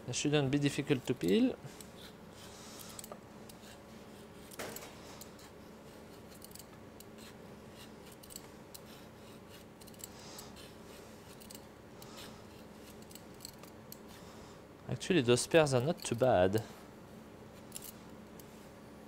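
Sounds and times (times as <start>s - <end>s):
low steady hum: 0.0s - 19.0s
peeler scraping fruit skin: 5.2s - 14.2s.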